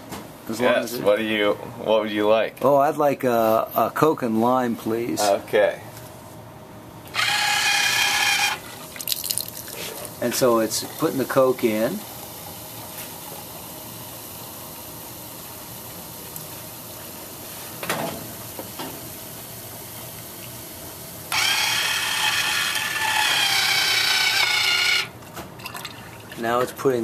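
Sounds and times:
motor whirring: 7.1s - 8.8s, 21.3s - 25.1s
cola pouring and fizzing: 8.0s - 17.8s, 25.6s - 26.7s.

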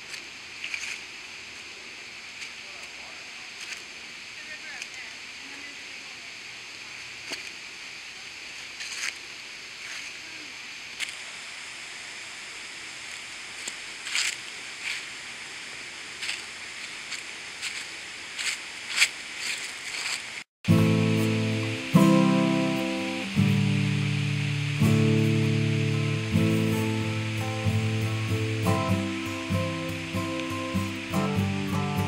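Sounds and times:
footsteps crunching on dry leaves: 0.0s - 5.0s, 8.5s - 11.4s, 13.0s - 32.0s
steady outdoor hiss: 0.0s - 32.0s
acoustic guitar music: 20.7s - 32.0s.

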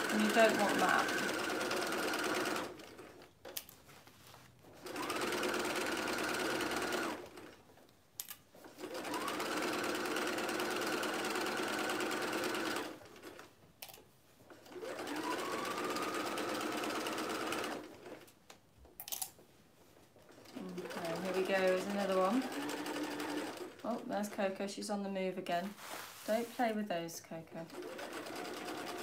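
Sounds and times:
sewing machine motor whine: 0.0s - 3.2s, 8.8s - 13.0s, 14.6s - 18.2s, 20.4s - 24.0s, 27.7s - 29.0s
sewing machine stitching: 0.0s - 3.3s, 4.7s - 7.6s, 8.6s - 13.5s, 14.5s - 18.3s, 20.3s - 24.0s, 27.6s - 29.0s.

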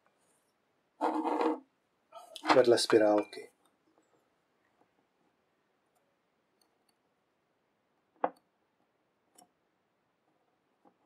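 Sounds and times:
small clicks and taps: 8.1s - 9.6s.

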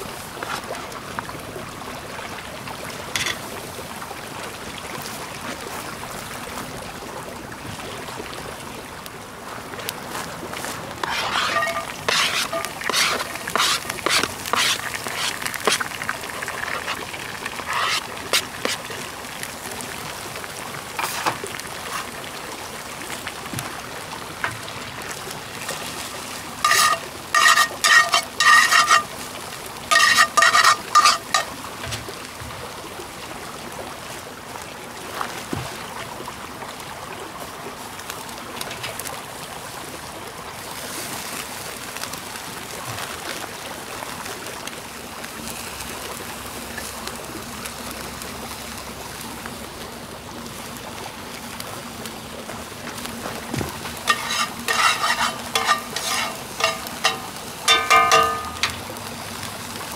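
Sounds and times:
light clicks and scrapes: 10.2s - 18.9s, 21.0s - 22.2s, 26.7s - 29.1s, 29.9s - 32.1s, 54.1s - 58.8s
food sizzling in a pan: 11.0s - 19.6s, 20.9s - 22.2s, 25.9s - 32.0s, 53.9s - 59.9s.

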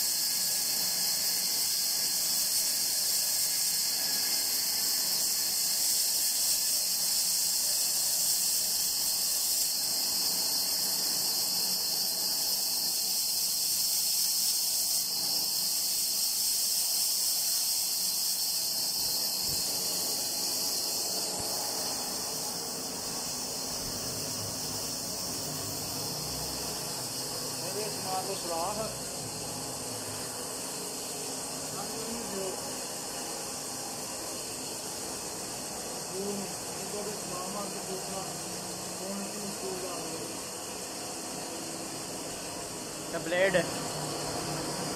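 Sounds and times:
electric motor running: 0.0s - 44.9s.

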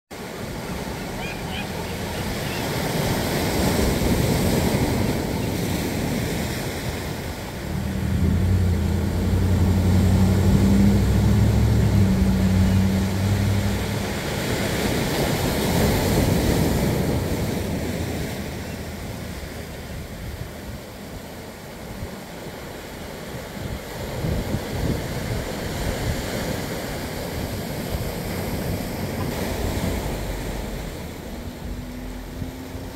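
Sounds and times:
surf breaking over rocks: 0.2s - 32.9s
wind rumble on microphone: 2.8s - 32.9s
low steady hum: 7.5s - 14.4s.

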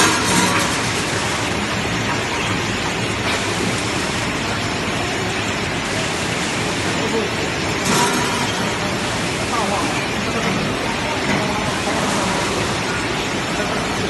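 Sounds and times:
processing machinery running: 0.0s - 14.0s.

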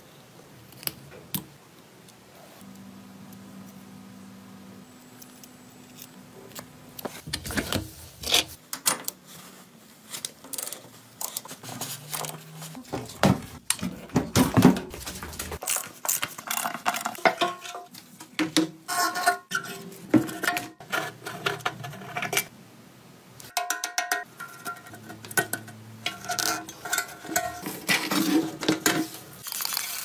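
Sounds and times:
clinking and scraping metal tools: 18.9s - 22.5s, 23.5s - 30.0s.

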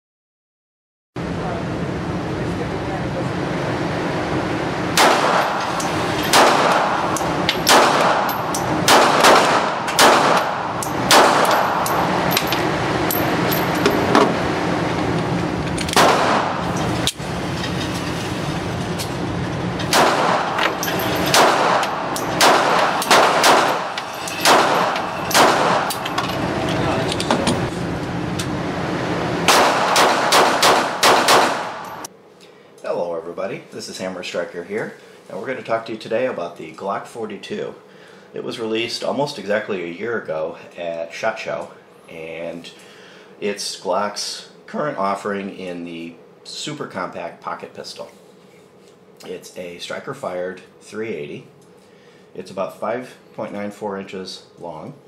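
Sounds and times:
steady background noise: 1.2s - 55.0s
pistol shots: 5.0s - 5.7s, 6.3s - 12.0s, 16.0s - 16.7s, 19.9s - 26.1s, 29.4s - 32.1s.

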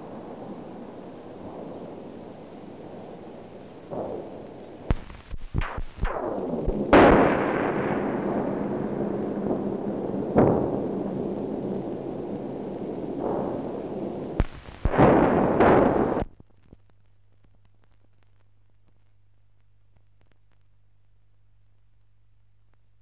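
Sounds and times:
deep rumbling booms: 3.9s - 16.4s
faint low hum: 11.4s - 23.0s.

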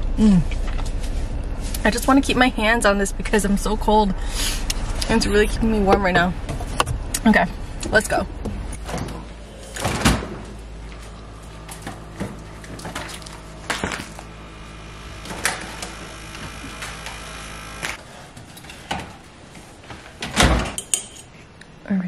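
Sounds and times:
steady low hum: 0.0s - 21.9s
refrigerator door opening: 8.5s - 14.3s, 15.1s - 17.2s, 20.1s - 20.8s
food packages knocking and thudding: 11.7s - 14.2s.

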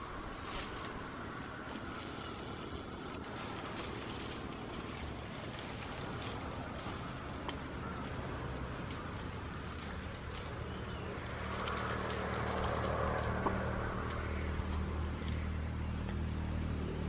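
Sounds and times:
insect drone: 0.0s - 17.0s
leaves and branches rustling: 0.0s - 17.0s
low engine hum: 0.0s - 17.0s
twigs snapping: 3.0s - 15.5s.

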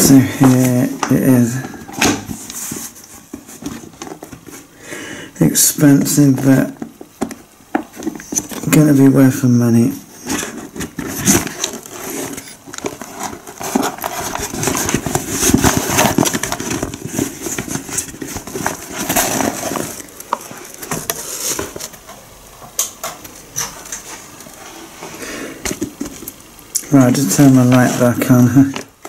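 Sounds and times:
bag rustling and crinkling: 0.0s - 4.8s, 10.0s - 22.2s, 23.5s - 29.0s.

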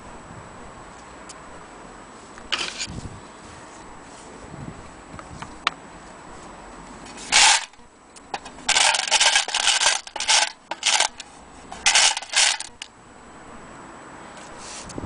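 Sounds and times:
metal parts clinking in a tin: 7.3s - 12.9s.

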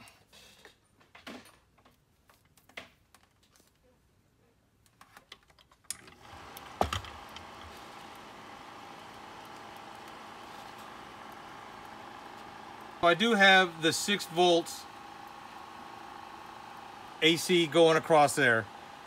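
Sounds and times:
slide projector fan hum: 6.1s - 19.0s.

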